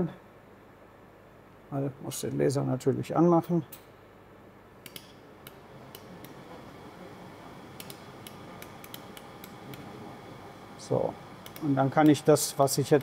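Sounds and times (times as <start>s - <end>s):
laser welder pulse ticks: 4.8s - 6.4s, 7.7s - 9.9s, 11.3s - 13.0s.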